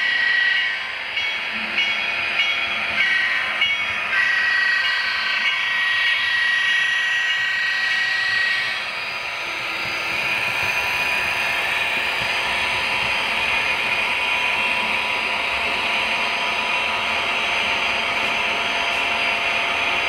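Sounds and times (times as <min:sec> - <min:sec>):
electric motors whining: 0:03.2 - 0:20.0
wheels on rails: 0:07.3 - 0:20.0.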